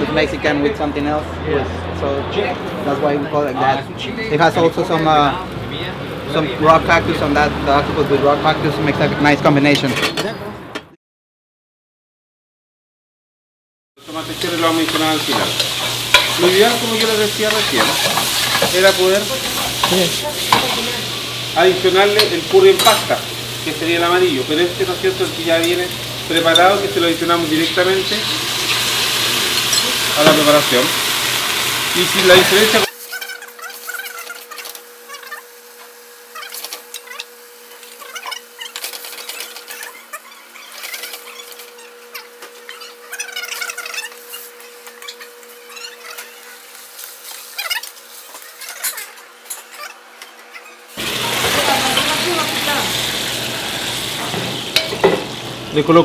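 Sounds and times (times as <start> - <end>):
food sizzling in a wok: 14.0 - 40.1, 40.7 - 49.4, 50.9 - 56.0
metal utensil scraping pan: 14.4 - 21.1, 22.0 - 23.2.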